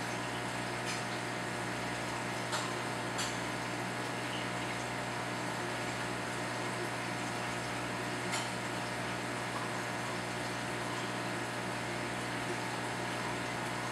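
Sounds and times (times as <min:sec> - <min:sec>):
aquarium pump humming: 0:00.0 - 0:13.9.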